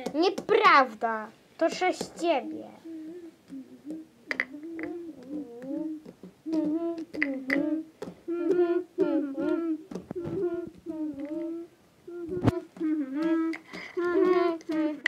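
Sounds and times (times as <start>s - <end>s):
child humming: 2.5s - 15.0s
toy figures clicking on tile floor: 4.3s - 8.7s.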